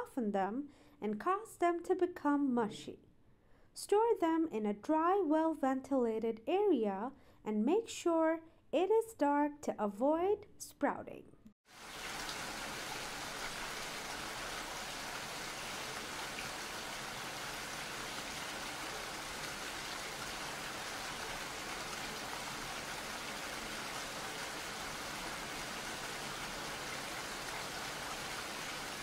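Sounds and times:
rain falling: 11.7s - 29.0s.

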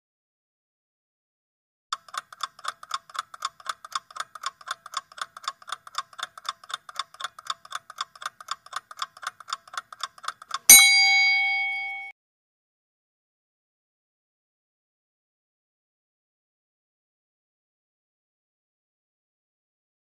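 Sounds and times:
clock ticking fast: 1.9s - 12.1s
bell ding: 10.7s - 12.1s.

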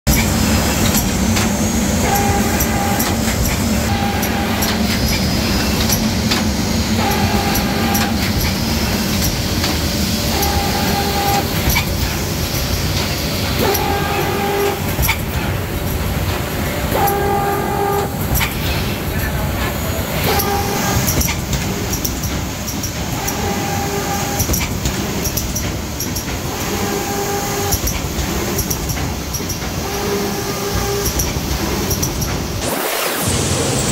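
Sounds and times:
sharp machine clicks: 0.1s - 13.9s, 20.2s - 27.0s, 27.6s - 33.4s
machine humming: 0.1s - 33.9s.

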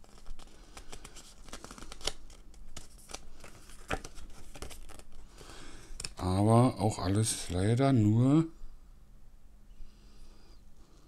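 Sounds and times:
paper rustling and crackling: 0.0s - 5.3s.

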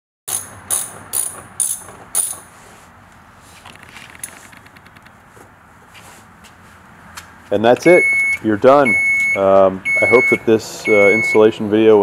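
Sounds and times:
ratchet wrench clicking: 0.3s - 2.5s.

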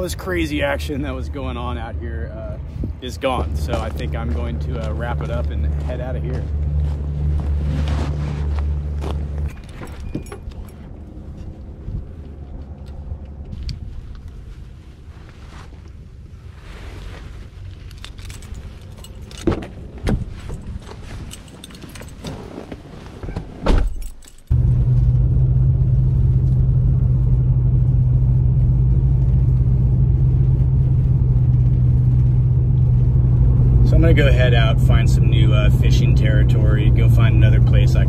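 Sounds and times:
low engine hum: 0.0s - 38.0s
car door and keys clicking: 9.3s - 11.0s, 17.9s - 24.5s.

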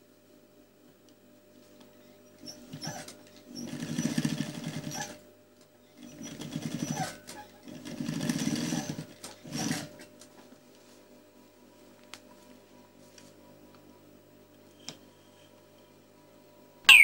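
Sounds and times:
industrial sewing machine stitching: 2.7s - 5.2s, 6.0s - 10.0s.

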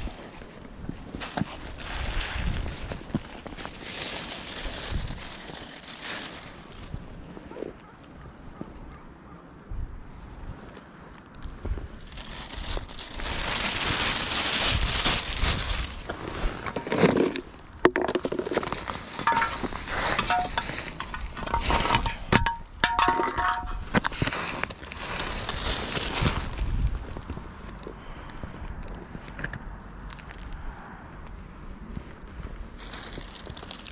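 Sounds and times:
trash bag rustling and crinkling: 0.0s - 7.9s, 10.4s - 27.3s, 32.6s - 33.9s
clinks and knocks: 17.9s - 23.8s.

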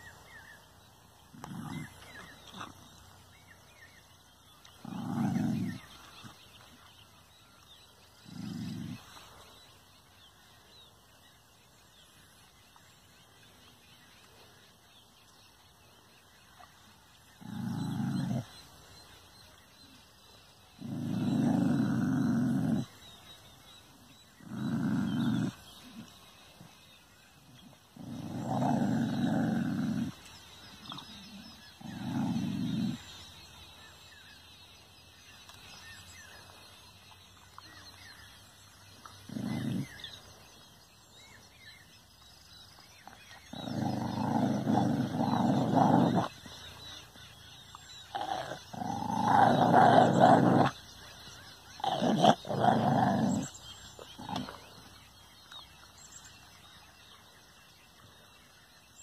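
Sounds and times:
dog growling: 1.2s - 3.0s, 4.6s - 6.4s, 8.2s - 9.4s, 17.3s - 19.0s, 20.7s - 33.8s, 37.6s - 40.6s, 42.9s - 55.1s.

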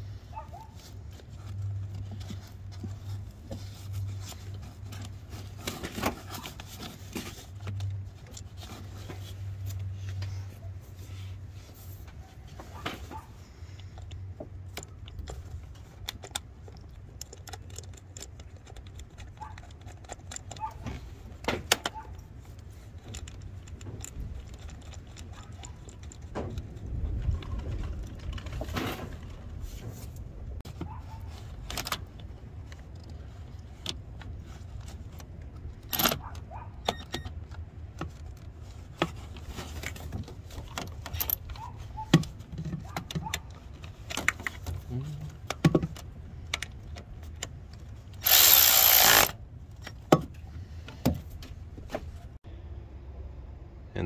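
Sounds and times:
ratchet clicking and clinking: 48.2s - 49.4s.

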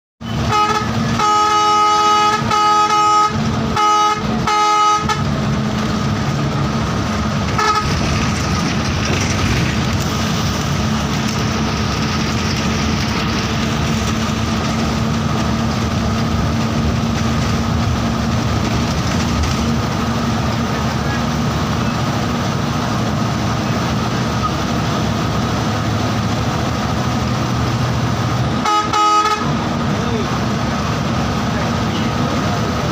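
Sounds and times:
multi-tone bus horn blasts: 0.2s - 5.7s, 7.5s - 8.1s, 28.5s - 29.7s
bus engine running: 0.2s - 32.9s
road noise: 0.2s - 32.9s.

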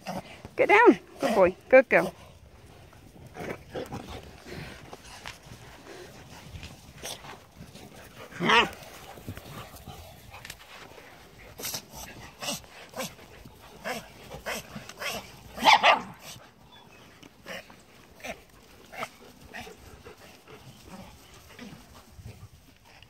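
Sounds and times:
puppies barking and yipping: 13.8s - 17.4s.

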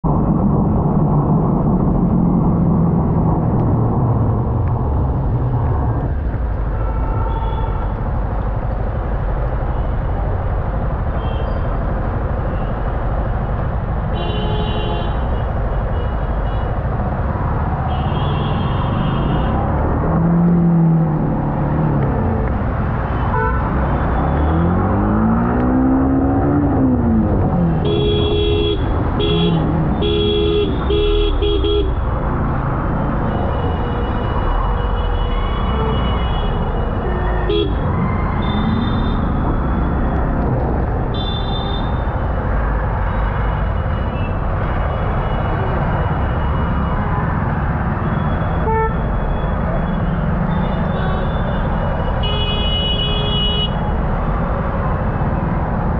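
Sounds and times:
engine revving: 23.7s - 27.8s
car horns honking: 48.6s - 49.0s.

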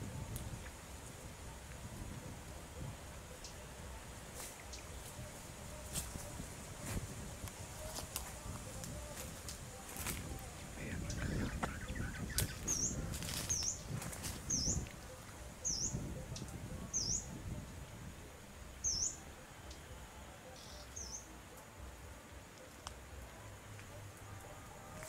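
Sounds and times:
small bird calling: 10.5s - 17.3s.

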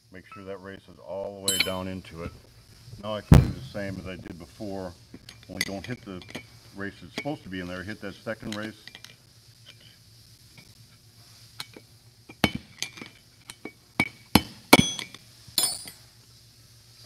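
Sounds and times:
hammer striking metal punch: 1.5s - 1.8s, 14.0s - 16.0s.

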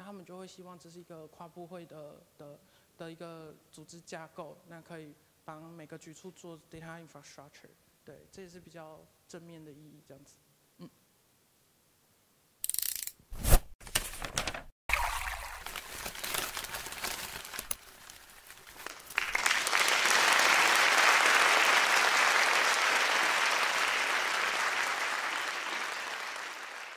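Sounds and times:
crowd applauding: 18.7s - 26.9s.

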